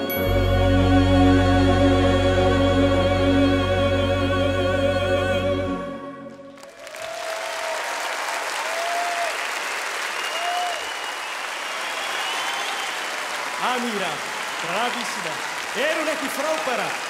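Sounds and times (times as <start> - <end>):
choir and orchestra chord: 0.0 - 6.6
audience applause: 6.5 - 17.0
audience calls: 6.5 - 17.0.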